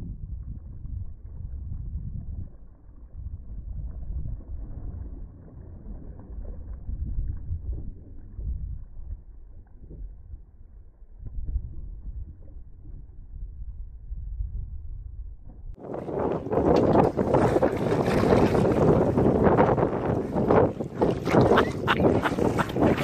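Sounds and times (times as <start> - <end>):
wind buffeting microphone: 0.0 - 23.0
water sloshing against hull: 1.2 - 10.6, 15.8 - 23.0.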